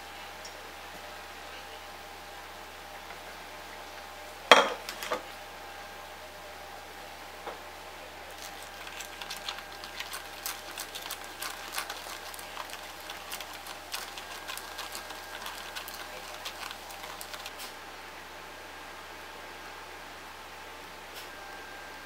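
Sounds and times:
fizzing bubbles crackling: 0:08.3 - 0:17.7.

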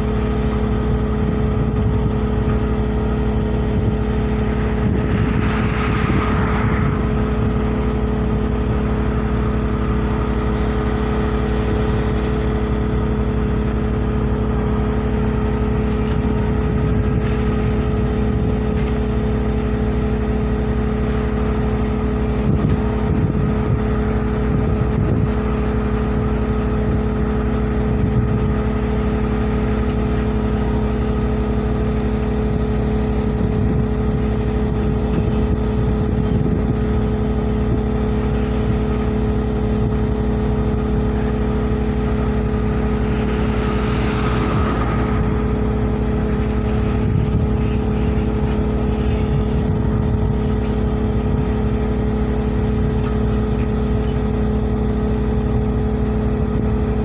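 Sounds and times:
excavator diesel engine drone: 0:00.0 - 0:57.0.

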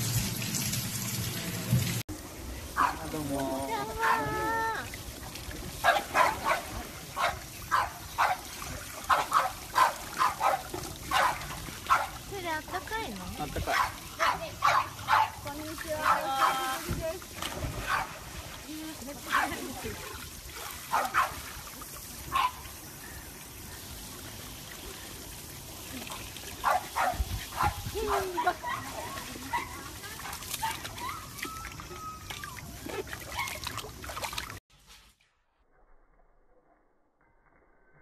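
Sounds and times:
water trickling from hand shower: 0:00.0 - 0:17.6
puppy barking: 0:02.8 - 0:03.1, 0:05.8 - 0:08.5, 0:09.1 - 0:12.2, 0:13.7 - 0:15.4, 0:20.6 - 0:21.4, 0:22.3 - 0:22.6, 0:26.6 - 0:30.9
dog giving high falling cries: 0:30.6 - 0:33.7.

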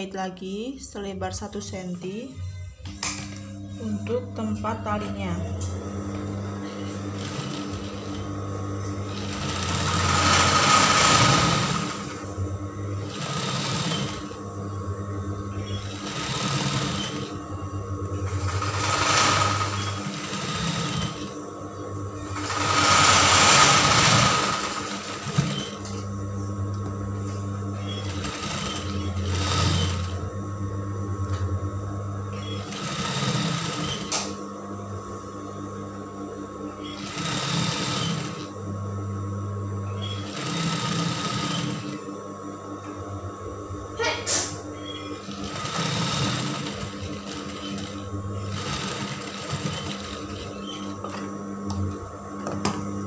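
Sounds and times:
sewing machine stitching: 0:06.7 - 0:08.3, 0:09.0 - 0:12.3, 0:13.0 - 0:14.4, 0:15.7 - 0:17.4, 0:18.2 - 0:21.3, 0:22.2 - 0:26.0, 0:27.8 - 0:30.2, 0:32.4 - 0:34.4, 0:36.9 - 0:38.5, 0:40.0 - 0:42.0, 0:45.1 - 0:51.0.

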